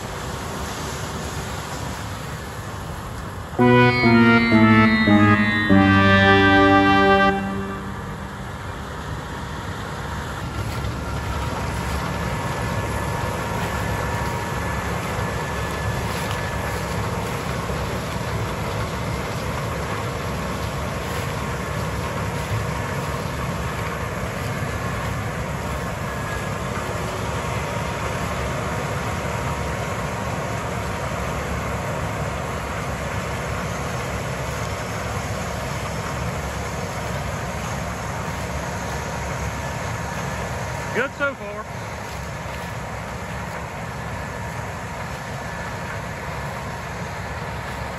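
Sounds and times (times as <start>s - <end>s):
heavy farm machinery drone: 3.6s - 31.3s.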